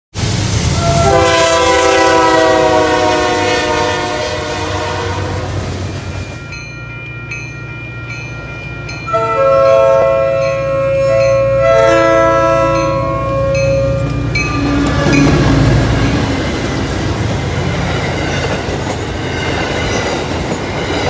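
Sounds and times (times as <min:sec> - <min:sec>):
train rumble and clatter: 0:00.1 - 0:07.5, 0:08.1 - 0:21.0
locomotive horn: 0:00.8 - 0:06.0, 0:09.1 - 0:16.4
crossing signal bell ringing: 0:05.9 - 0:20.2.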